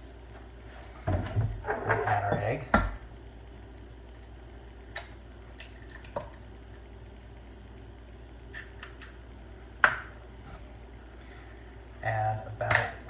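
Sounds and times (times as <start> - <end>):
egg cracking with wet squish: 3.7 - 7.0, 8.4 - 9.2.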